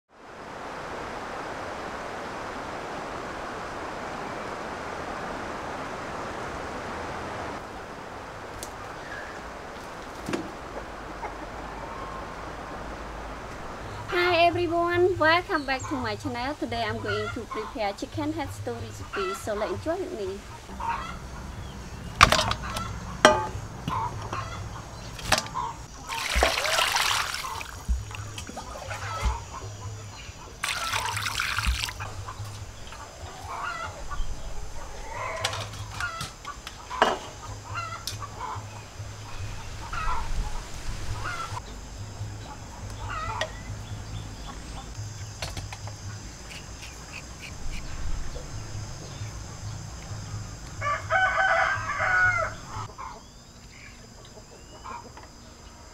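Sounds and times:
chickens clucking: 0:10.6 - 0:12.4, 0:15.6 - 0:49.4, 0:50.0 - 0:55.6
steel bowls clinking: 0:23.2 - 0:23.7
water pouring into basin: 0:26.0 - 0:29.2, 0:30.6 - 0:32.1
rooster crowing: 0:28.6 - 0:30.0, 0:33.0 - 0:38.8, 0:41.2 - 0:41.6, 0:43.0 - 0:43.6, 0:50.7 - 0:53.2.

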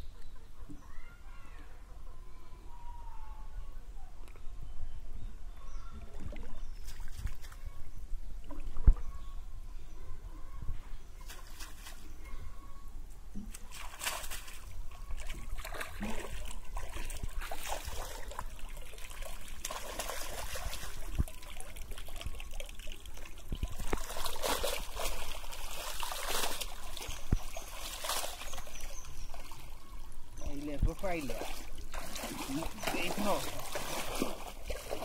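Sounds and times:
water splashing and sloshing: 0:06.0 - 0:07.8, 0:08.4 - 0:09.2, 0:13.3 - 0:35.0.

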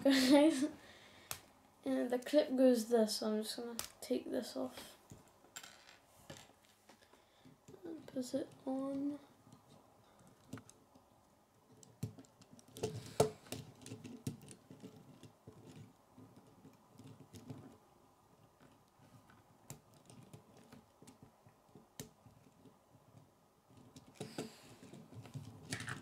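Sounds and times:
plastic pieces clicking and rattling: 0:18.6 - 0:26.0.

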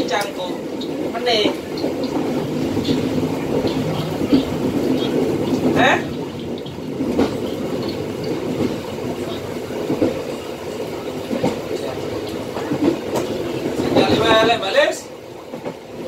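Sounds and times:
train wheels rumbling on rail: 0:00.0 - 0:16.0
irregular knocks: 0:00.2 - 0:10.5.

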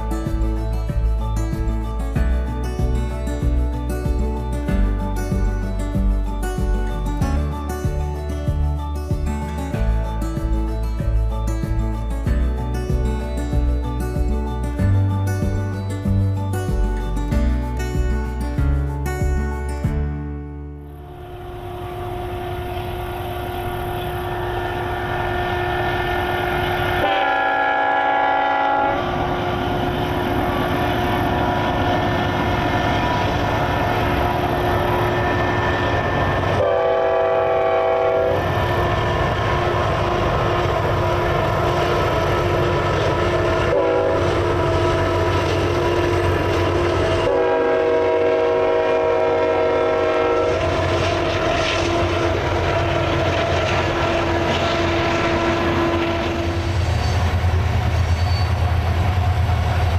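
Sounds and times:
freight train rumbling: 0:20.8 - 0:59.9
locomotive air horn blasts: 0:20.9 - 0:33.4, 0:34.1 - 0:38.9, 0:39.5 - 0:56.8.

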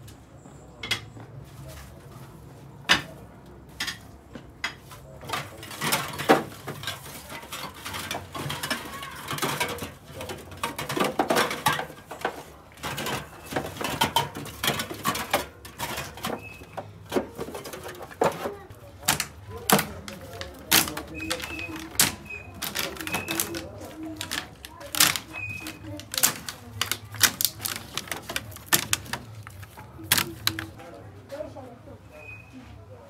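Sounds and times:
drink cans clinking and clattering: 0:04.7 - 0:30.8.

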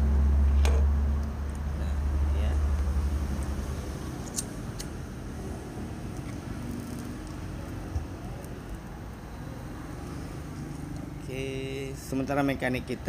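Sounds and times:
road traffic: 0:00.0 - 0:13.0.

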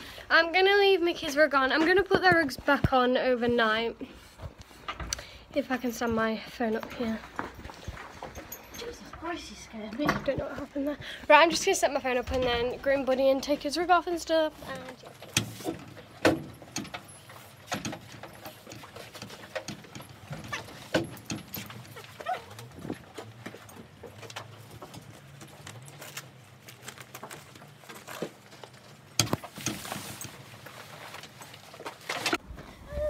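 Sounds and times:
buckles and straps clicking: 0:14.6 - 0:32.6
rug fabric rustling: 0:18.4 - 0:32.4.

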